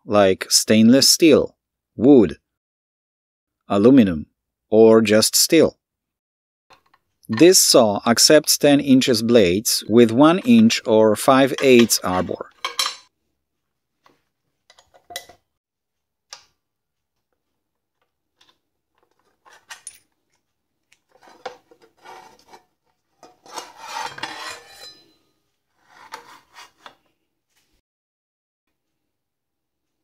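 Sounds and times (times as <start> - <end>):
metal scraping and rubbing: 21.1 - 26.9.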